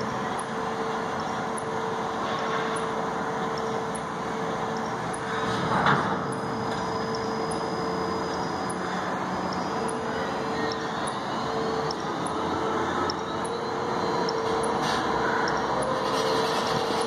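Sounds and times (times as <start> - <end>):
crane machinery drone: 0.0 - 17.0
mid-pitched whine: 0.0 - 17.0
burst of machinery noise: 5.0 - 9.9, 14.4 - 17.0.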